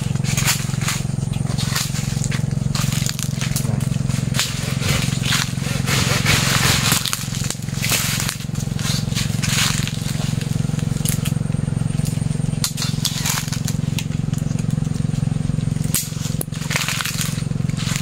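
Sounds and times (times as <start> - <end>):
pruning tool snipping branch: 0.0 - 11.4
leaves rustling: 0.0 - 18.0
steady low hum: 0.0 - 18.0.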